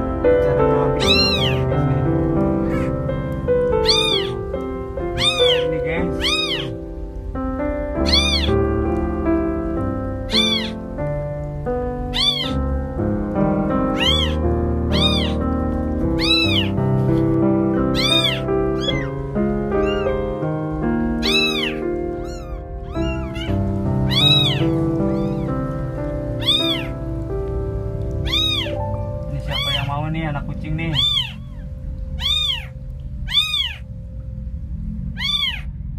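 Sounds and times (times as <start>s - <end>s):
background music: 0.0s - 35.1s
kittens meowing: 0.4s - 7.0s, 7.9s - 8.7s, 10.2s - 11.0s, 11.9s - 12.8s, 13.8s - 16.8s, 17.7s - 20.5s, 21.1s - 27.0s, 28.0s - 34.0s, 35.1s - 35.8s.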